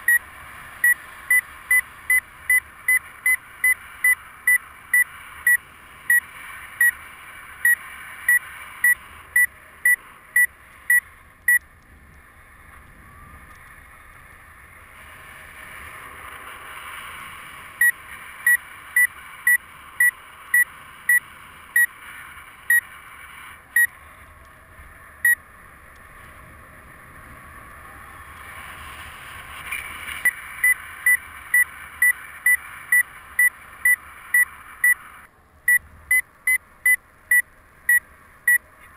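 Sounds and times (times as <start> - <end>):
variometer beeping: 0.0 - 7.0, 7.6 - 11.9, 17.7 - 22.0, 22.6 - 22.9, 23.7 - 24.0, 25.2 - 25.4, 30.2 - 38.9.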